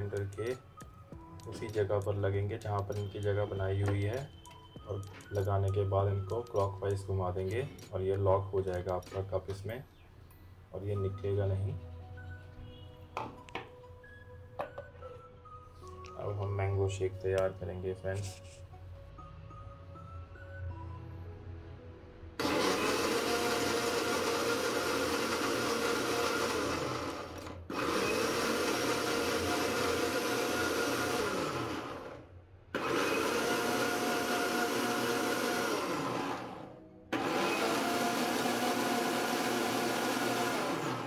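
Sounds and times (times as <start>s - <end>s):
blender motor running: 22.4s - 32.2s, 32.8s - 41.0s.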